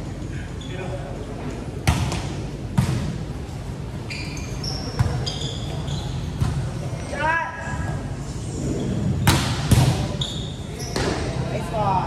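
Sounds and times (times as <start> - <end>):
shoes squeaking on court: 4.0 - 7.1, 8.7 - 11.4.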